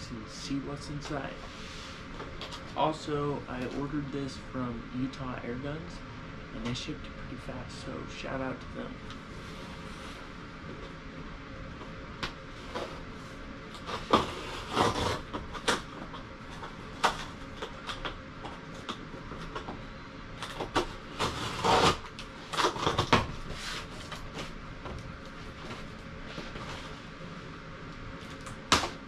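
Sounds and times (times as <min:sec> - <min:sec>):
cardboard scraping and rustling: 0:12.6 - 0:18.1, 0:20.4 - 0:24.6, 0:25.3 - 0:27.2.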